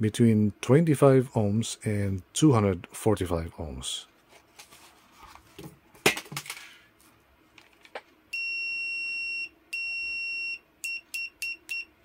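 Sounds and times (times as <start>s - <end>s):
multimeter continuity beeping: 8.3s - 12.0s.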